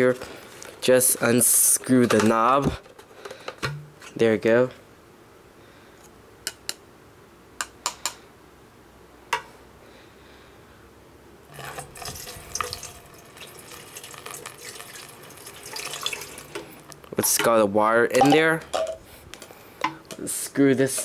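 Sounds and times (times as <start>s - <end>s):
water pouring and splashing: 11.5s - 16.7s.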